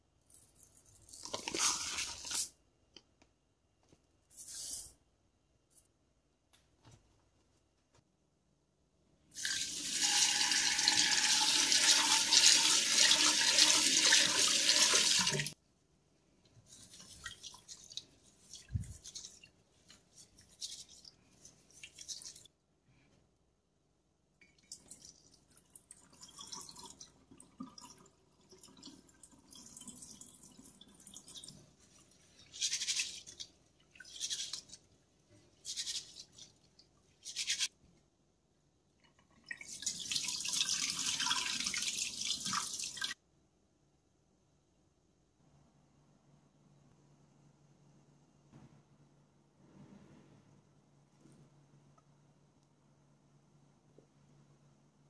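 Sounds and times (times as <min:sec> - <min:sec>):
tap water running into pot: 0:09.4 - 0:15.6
water pouring into sink: 0:09.4 - 0:15.6, 0:39.3 - 0:43.2.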